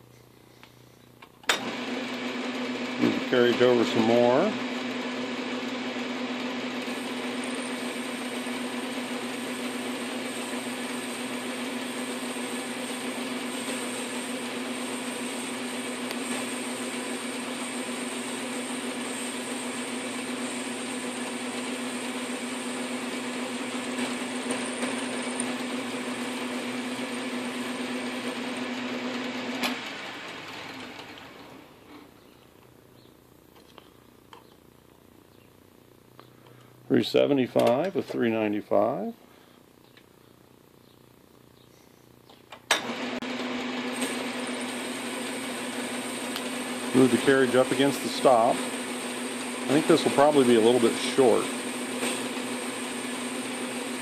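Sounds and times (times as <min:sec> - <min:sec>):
lathe motor and belt hum: 0:01.5 - 0:32.7, 0:42.7 - 0:54.0
hiss of metal cutting: 0:06.9 - 0:27.7, 0:44.0 - 0:54.0.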